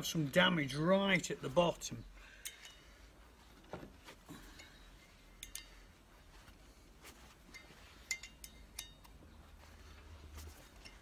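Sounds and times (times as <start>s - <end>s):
faint metallic clinks of spanner: 2.4s - 2.9s, 4.5s - 5.9s, 7.5s - 9.3s.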